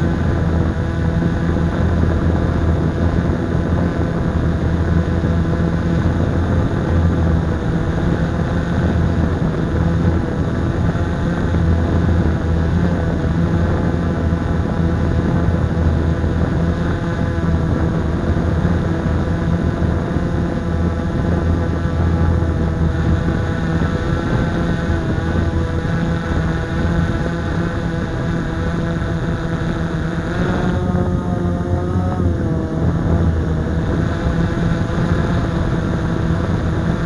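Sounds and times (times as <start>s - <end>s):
quadcopter motors buzzing: 0.0s - 37.0s.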